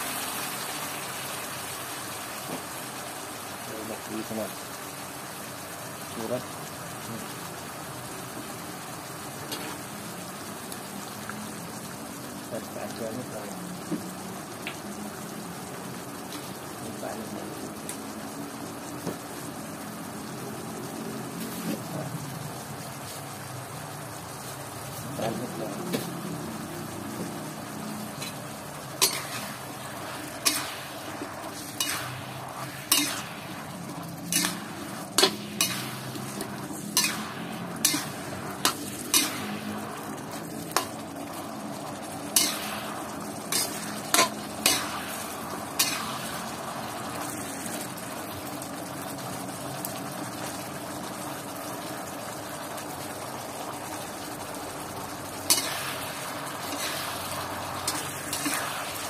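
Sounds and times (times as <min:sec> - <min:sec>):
food sizzling in a wok: 0:00.0 - 0:59.0
metal spatula scraping a wok: 0:29.0 - 0:29.7, 0:31.5 - 0:32.2, 0:32.9 - 0:33.3, 0:34.3 - 0:39.4, 0:43.5 - 0:46.1, 0:56.6 - 0:58.7.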